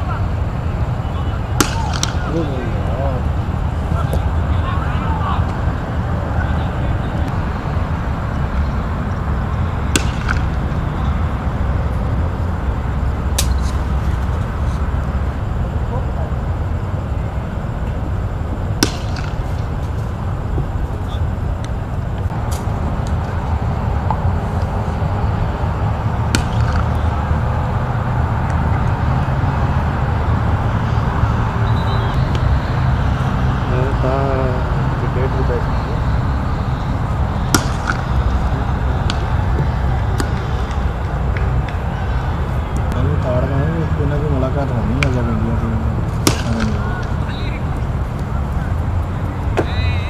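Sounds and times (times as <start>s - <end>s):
low background rumble: 0.0s - 50.0s
cricket ball striking bat: 1.5s - 2.5s, 3.9s - 4.3s, 9.8s - 11.2s, 13.3s - 14.0s, 18.8s - 19.8s, 26.2s - 27.4s, 37.3s - 41.9s, 46.2s - 47.6s
sharp cracks: 1.5s - 2.5s, 9.9s - 10.8s, 13.3s - 13.9s, 18.8s - 20.1s, 26.2s - 27.0s, 37.4s - 39.5s, 46.1s - 47.5s.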